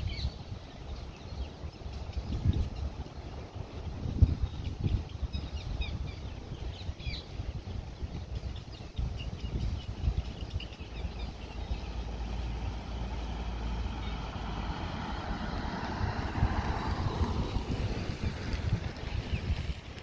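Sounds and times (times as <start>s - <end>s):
small birds chirping: 0.0s - 15.6s
wind rumbling on microphone: 0.0s - 20.0s.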